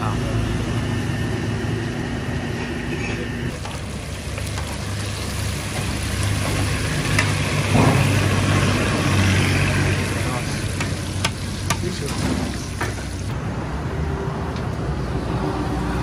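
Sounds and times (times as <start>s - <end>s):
fish frying in hot oil: 3.5s - 13.3s.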